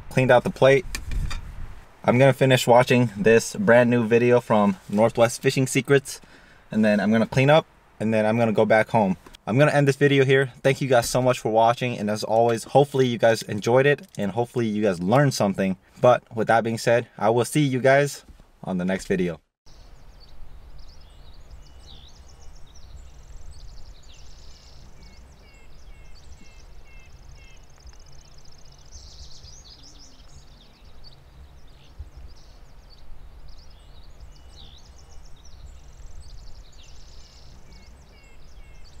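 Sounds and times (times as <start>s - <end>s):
songbirds singing and chirping: 0.0s - 39.0s.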